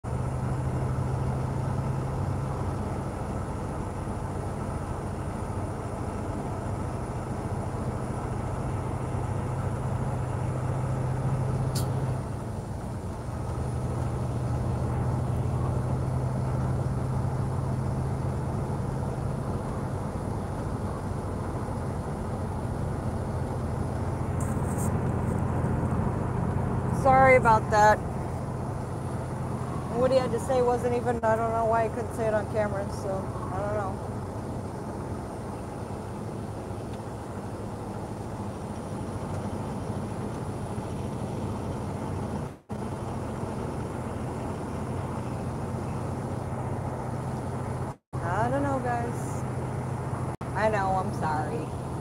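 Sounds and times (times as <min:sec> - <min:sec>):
truck engine humming: 0:00.0 - 0:52.0
sharp click: 0:11.7 - 0:12.0.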